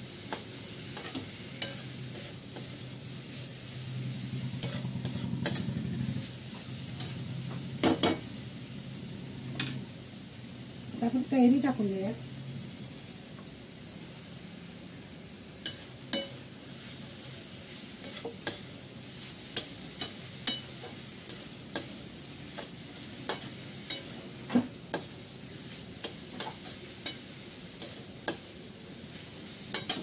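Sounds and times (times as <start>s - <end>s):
steady sizzle: 0.0s - 30.0s
spatula scraping metal pan: 4.6s - 5.8s.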